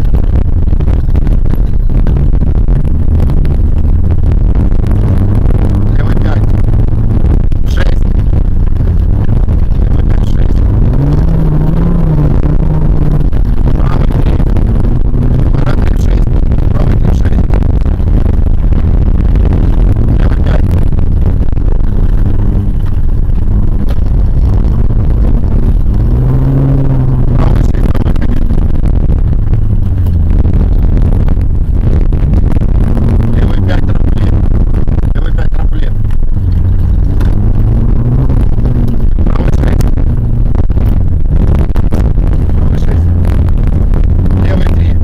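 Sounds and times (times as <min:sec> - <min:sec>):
car engine and tyres rumbling: 0:00.0 - 0:45.0.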